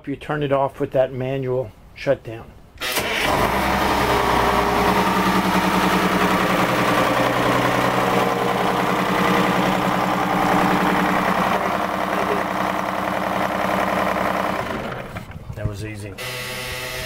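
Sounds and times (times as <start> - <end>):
diesel engine idling: 3.1 - 15.4.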